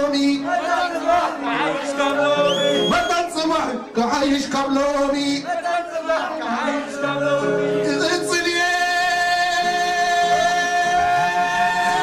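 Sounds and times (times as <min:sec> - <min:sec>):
man singing: 0:00.0 - 0:12.0
band playing pop song: 0:04.4 - 0:12.0.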